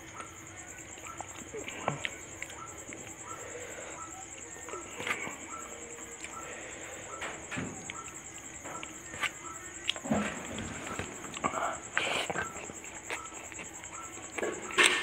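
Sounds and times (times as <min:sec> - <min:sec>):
fingers squishing wet food: 0:11.2 - 0:14.5.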